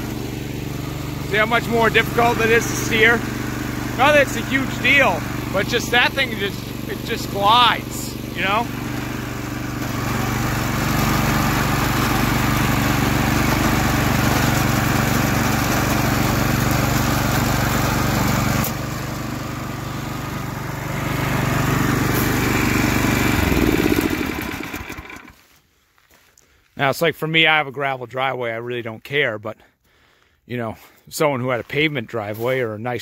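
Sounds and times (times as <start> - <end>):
wheels rolling over gravel: 0.0 - 19.9
small gasoline engine running: 0.0 - 25.4.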